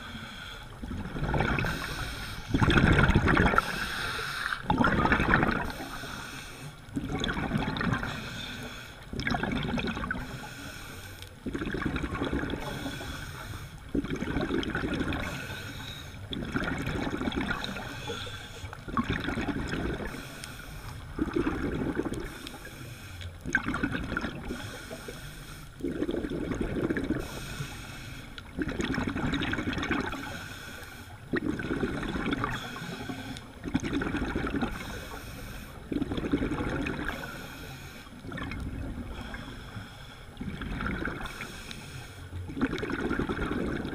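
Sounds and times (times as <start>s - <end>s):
regulator breathing underwater: 0.0s - 7.1s, 7.7s - 9.3s, 10.0s - 23.5s, 24.3s - 28.6s, 30.1s - 43.9s
exhaled bubbles rushing: 0.8s - 3.8s, 4.5s - 6.0s, 6.9s - 8.3s, 9.1s - 10.4s, 11.4s - 13.0s, 13.9s - 15.5s, 16.2s - 18.0s, 18.7s - 20.2s, 21.1s - 22.5s, 23.4s - 24.7s, 25.8s - 27.4s, 28.5s - 30.3s, 31.3s - 35.0s, 35.8s - 37.3s, 38.2s - 39.3s, 40.4s - 41.5s, 42.4s - 43.9s.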